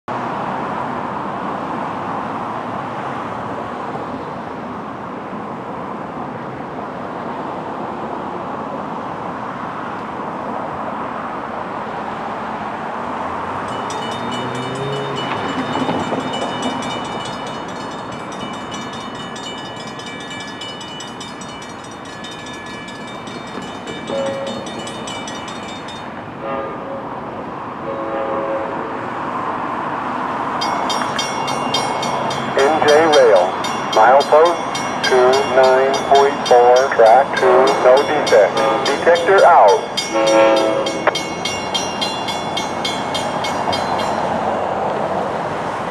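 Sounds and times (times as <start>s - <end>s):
distant outdoor rumble: 32.5s - 39.9s.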